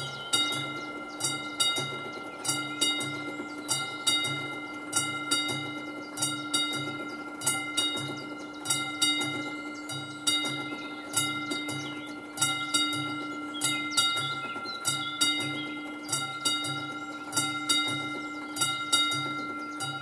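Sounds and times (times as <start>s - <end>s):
level crossing warning bell ringing: 0.0s - 20.0s.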